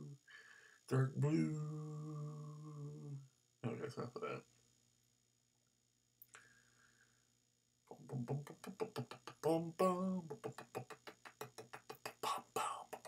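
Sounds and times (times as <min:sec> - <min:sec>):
man singing short syllables: 0:00.0 - 0:00.2, 0:00.9 - 0:04.4, 0:07.9 - 0:13.0
man beatboxing: 0:07.9 - 0:13.0.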